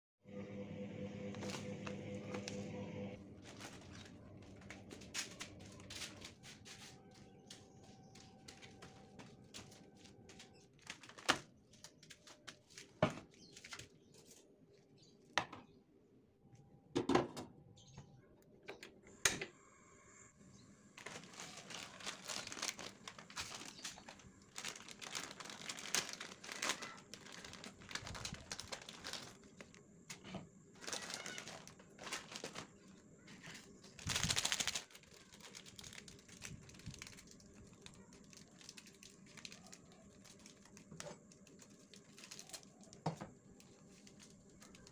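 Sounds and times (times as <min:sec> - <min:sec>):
sachets crinkling and tearing: 0:03.3 - 0:13.0, 0:21.0 - 0:29.9, 0:30.8 - 0:44.9.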